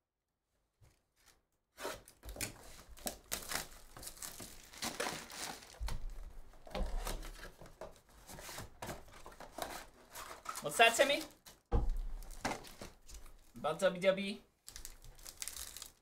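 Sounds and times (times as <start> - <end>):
shrink wrap crackling and tearing: 2.0 - 6.0, 14.6 - 16.0.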